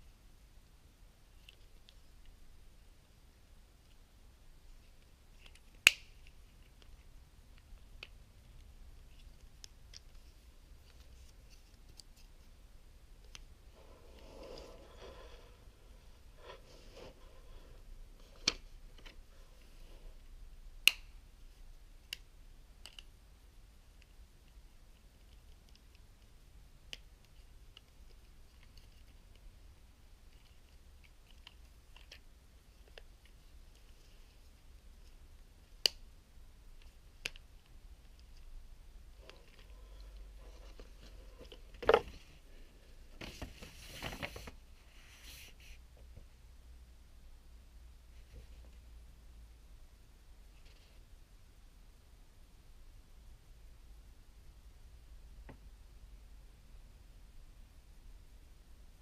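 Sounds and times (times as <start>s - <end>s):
scratchy rustling and scraping: 13.7s - 20.0s.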